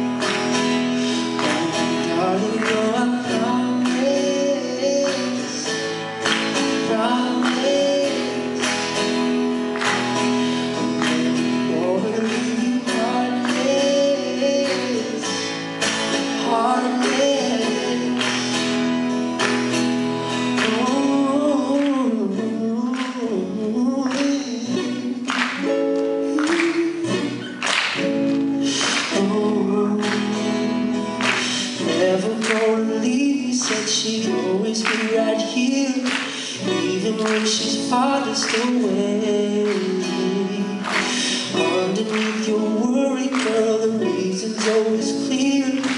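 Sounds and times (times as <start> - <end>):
man singing: 0.0 - 19.1, 20.4 - 27.6, 28.6 - 45.9
strummed acoustic guitar: 0.0 - 45.9.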